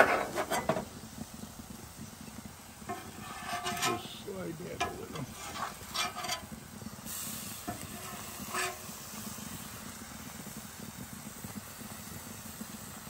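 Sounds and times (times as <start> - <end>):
metal spatula scraping a griddle: 0.0 - 0.9, 2.8 - 9.3
food sizzling on a griddle: 0.0 - 13.0.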